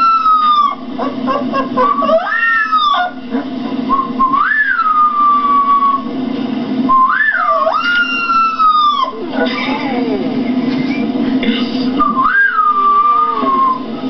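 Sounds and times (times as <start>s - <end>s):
puppy howling: 0.0s - 6.1s, 7.0s - 10.2s, 12.2s - 13.8s.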